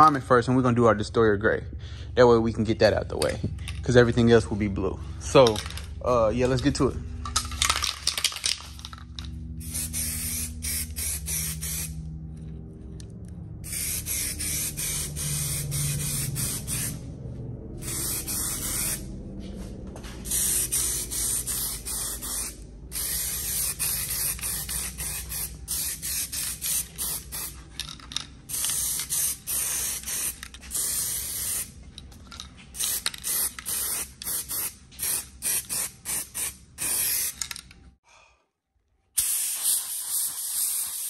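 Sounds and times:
fans humming: 1.3 - 30.8
aerosol can spraying: 9.6 - 12.0, 13.7 - 17.0, 17.8 - 19.1, 20.2 - 27.6, 28.5 - 31.7, 32.8 - 37.4, 39.2 - 41.0.

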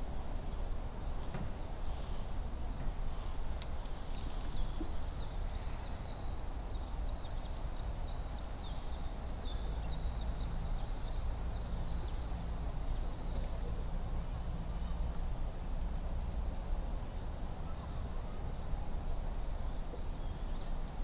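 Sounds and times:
small bird singing: 3.1 - 13.4.

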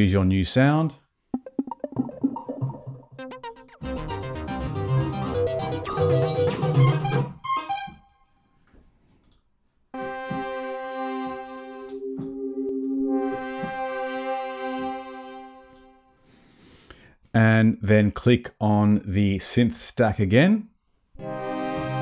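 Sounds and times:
synthesizer keyboard passage: 1.4 - 8.4, 10.0 - 16.2, 21.2 - 22.0
held synth chord: 1.5 - 8.0, 10.0 - 16.2, 21.2 - 22.0.

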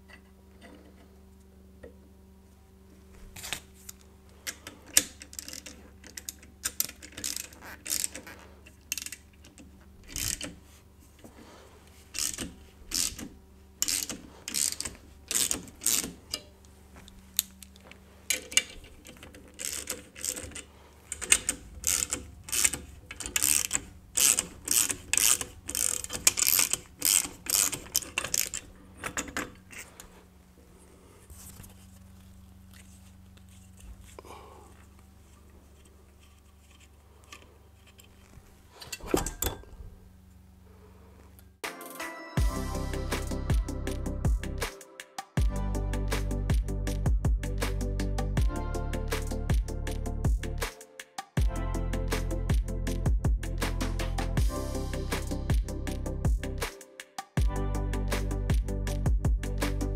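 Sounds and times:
ratchet wrench clicking: 4.5 - 10.6, 12.1 - 16.5, 18.3 - 29.6.

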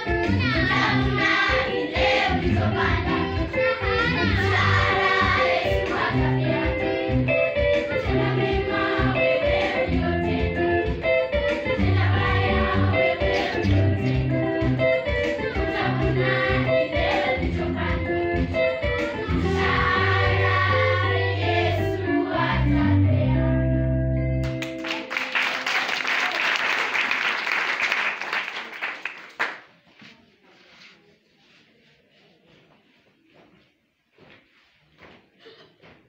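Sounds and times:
children's choir singing: 0.0 - 10.9, 11.5 - 14.4, 15.0 - 23.8
steady bass line: 0.0 - 24.6
applause: 24.4 - 29.8.

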